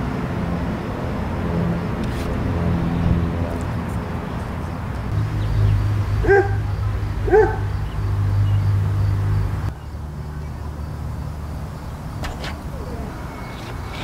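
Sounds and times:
steady low hum: 0.0 - 14.0
dog barking: 6.2 - 7.7.

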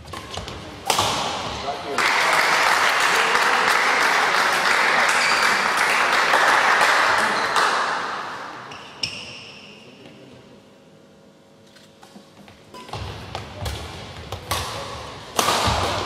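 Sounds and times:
spectators clapping: 1.9 - 8.4.

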